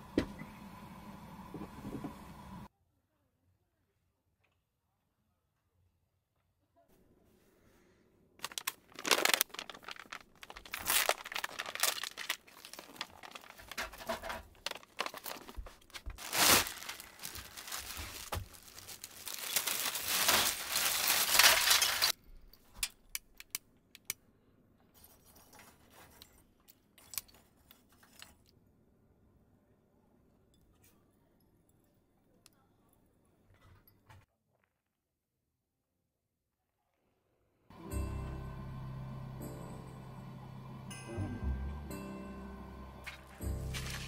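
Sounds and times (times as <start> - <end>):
plastic bag crinkling: 8.4 - 22.2, 43.7 - 44.0.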